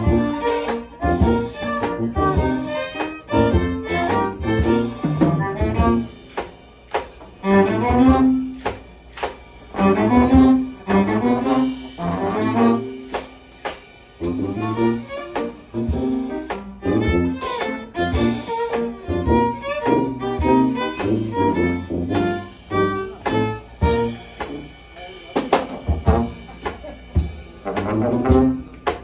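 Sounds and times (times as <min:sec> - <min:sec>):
bowed violin: 0:00.0 - 0:06.1, 0:14.4 - 0:15.8, 0:16.6 - 0:24.0
jazz band playing: 0:00.0 - 0:29.0.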